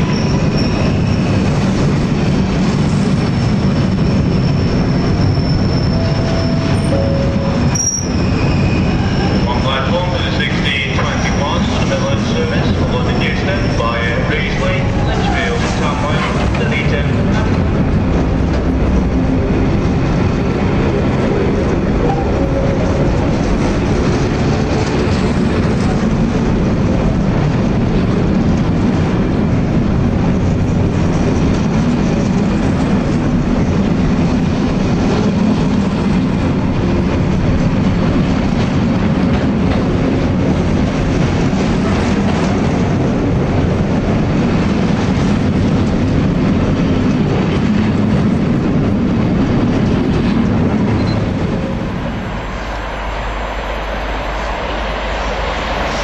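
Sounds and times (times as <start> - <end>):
train wheels running on rails: 0.0 - 56.0.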